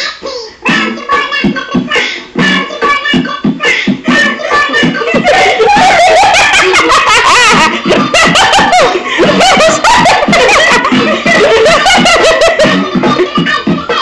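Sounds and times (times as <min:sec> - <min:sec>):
music playing: 0:00.0 - 0:14.0
women laughing: 0:04.4 - 0:14.0.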